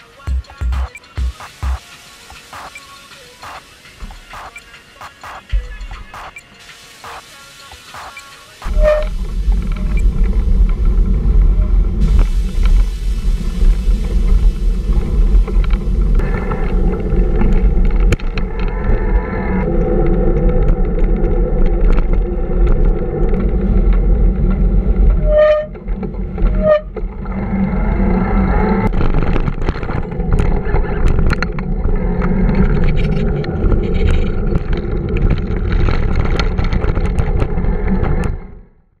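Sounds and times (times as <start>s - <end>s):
wind on microphone: 8.6s - 38.4s.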